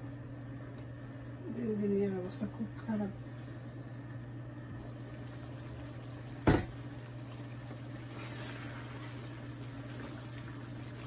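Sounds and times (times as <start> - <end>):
curry simmering in a pan: 4.8 - 11.0
wooden spoon stirring: 7.3 - 11.0.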